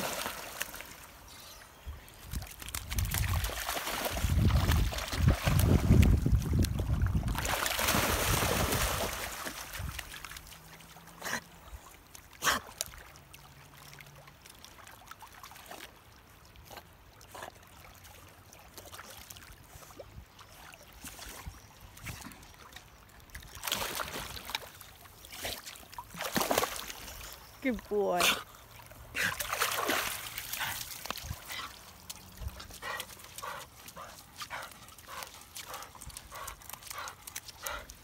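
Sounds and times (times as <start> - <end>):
dog splashing in water: 0.0 - 1.1, 2.2 - 11.2, 23.5 - 24.8, 25.5 - 27.3, 29.1 - 38.0
water lapping: 2.2 - 38.0.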